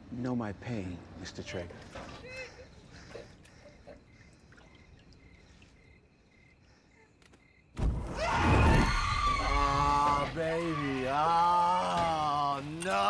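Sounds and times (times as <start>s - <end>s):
faint chirps: 1.8s - 7.8s
man screaming: 8.2s - 12.8s.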